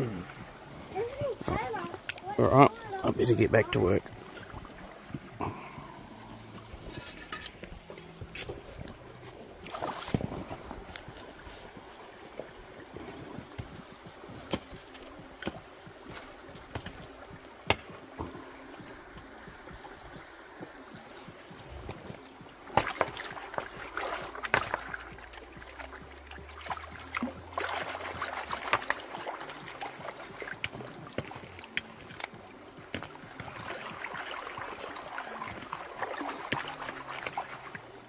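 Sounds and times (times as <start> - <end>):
creek water running over stones: 0.0 - 38.0
stones knocking together: 21.9 - 25.6
hand scooping gravel underwater: 22.7 - 32.2.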